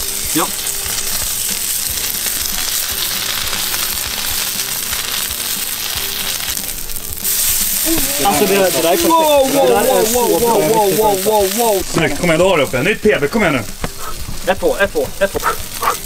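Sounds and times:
steak sizzling on a griddle: 0.0s - 16.0s
fat spitting: 7.8s - 12.0s, 13.9s - 14.3s, 15.2s - 16.0s.

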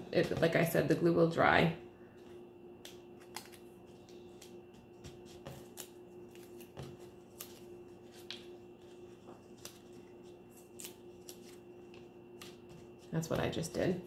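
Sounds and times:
low steady hum: 0.0s - 14.0s
paper rustling: 3.2s - 13.2s.

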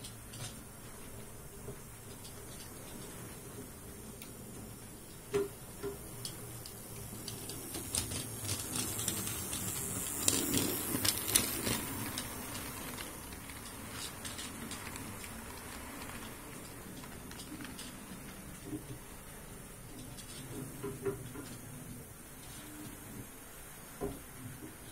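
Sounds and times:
model train wheels clicking: 1.8s - 23.7s.

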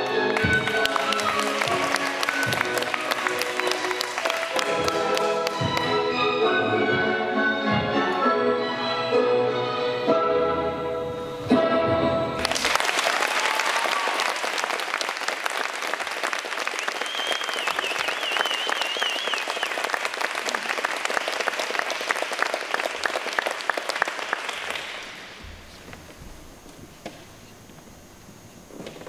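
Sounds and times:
audience applauding: 0.0s - 6.0s, 12.4s - 25.4s
high wavering whistle: 16.8s - 19.8s.

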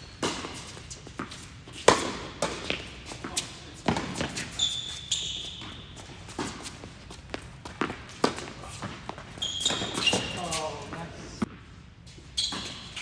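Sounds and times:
high shoe squeak: 0.0s - 1.8s, 2.6s - 6.8s, 8.6s - 10.8s, 12.2s - 13.0s
tennis balls struck and bouncing: 0.2s - 4.6s, 5.5s - 11.7s.

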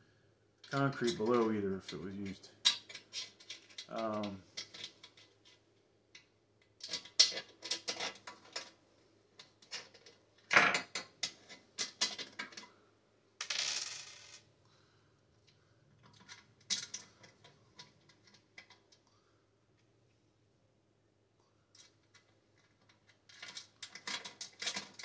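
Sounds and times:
metal parts clinking and knocking: 2.6s - 5.6s, 6.8s - 8.8s, 9.4s - 12.7s, 16.0s - 18.8s, 21.7s - 25.0s.

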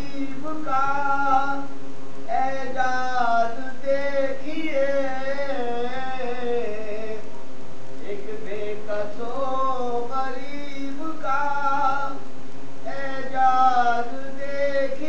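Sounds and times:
man chanting melodic elegy: 12.8s - 15.0s.

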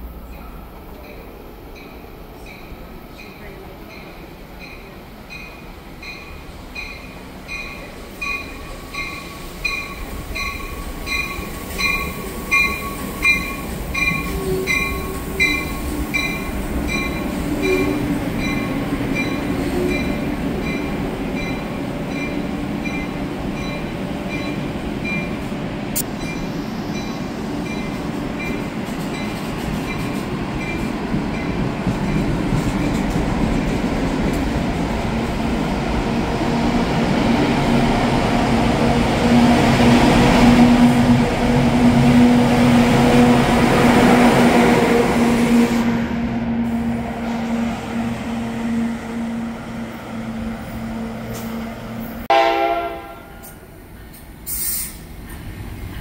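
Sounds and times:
train coaches rumbling: 0.0s - 56.0s
train bell ringing: 0.3s - 25.4s, 26.0s - 32.3s.

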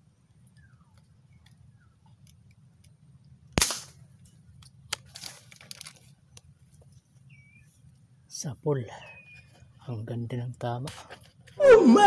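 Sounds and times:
marble gun shot: 3.6s - 4.0s
rustling and clattering in tree: 4.0s - 8.1s, 9.2s - 11.6s.

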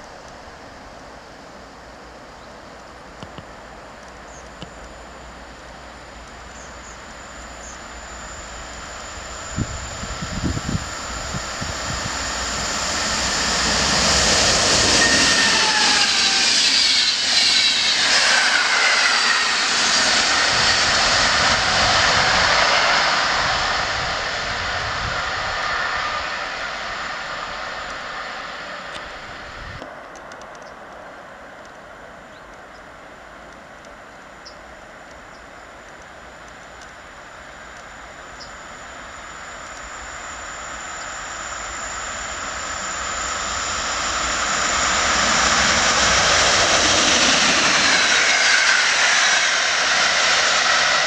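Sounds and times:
high whining tones: 3.0s - 29.8s, 34.3s - 51.0s
train wheels rushing on rail: 6.5s - 29.9s, 40.7s - 51.0s.

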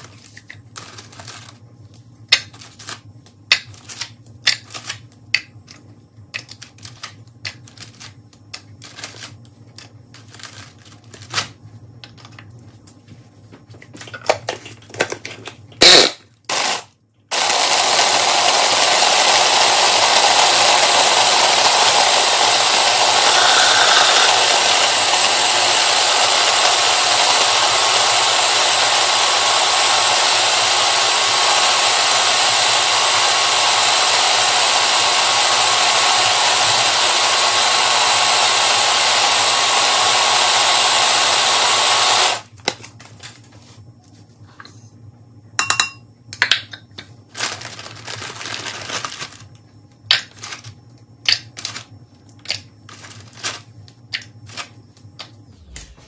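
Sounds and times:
cookies clicking and rustling: 0.0s - 13.0s, 46.4s - 55.3s
food processor grinding: 15.8s - 42.5s.

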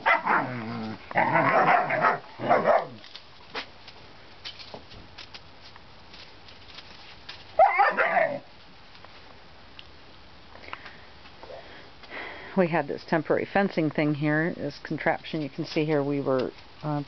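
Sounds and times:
puppies barking and yipping: 0.0s - 3.0s, 7.6s - 8.5s.

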